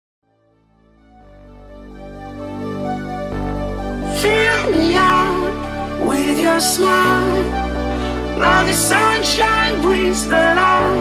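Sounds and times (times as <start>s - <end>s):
soft soundtrack music chords: 0.4s - 11.0s.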